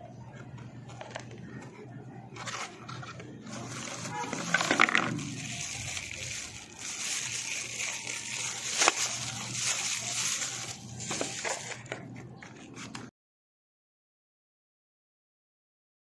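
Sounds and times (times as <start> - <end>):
plastic packaging rustling: 2.4 - 13.1.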